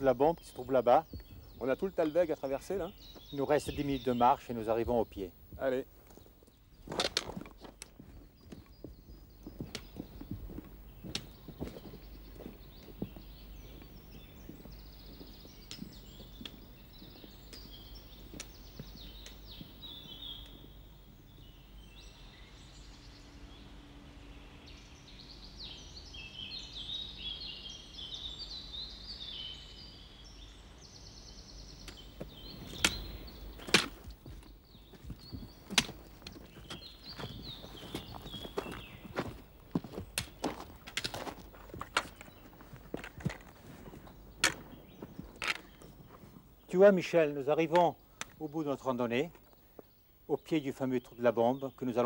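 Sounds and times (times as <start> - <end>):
small birds singing: 0.0 - 52.0
footsteps on rocky trail: 0.3 - 20.8, 31.9 - 46.7.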